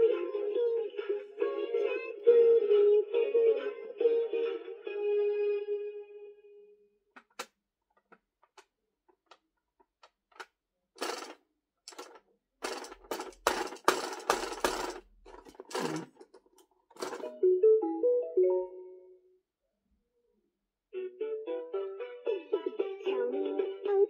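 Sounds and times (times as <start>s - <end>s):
toy packaging rustling: 11.0s - 17.3s.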